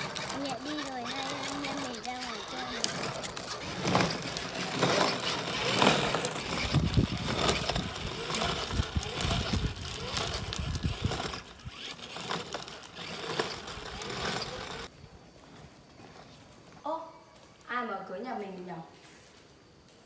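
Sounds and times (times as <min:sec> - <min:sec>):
plastic toy wheels rattling on concrete: 0:00.0 - 0:14.9.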